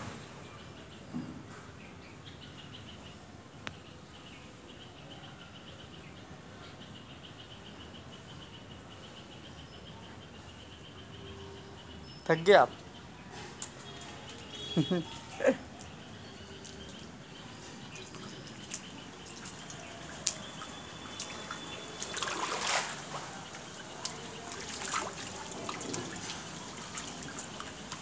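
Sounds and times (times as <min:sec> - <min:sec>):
water dripping and trickling: 0:12.7 - 0:28.0
rush of water: 0:17.8 - 0:28.0.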